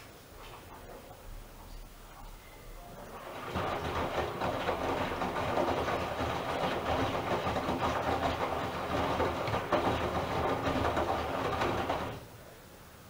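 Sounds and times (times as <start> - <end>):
washing machine drum tumbling laundry: 2.9 - 12.3
water sloshing: 3.0 - 12.3.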